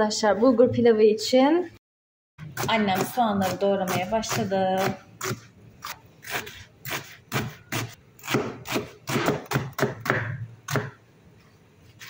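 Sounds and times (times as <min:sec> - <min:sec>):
knife chopping onions: 0:02.4 - 0:11.0.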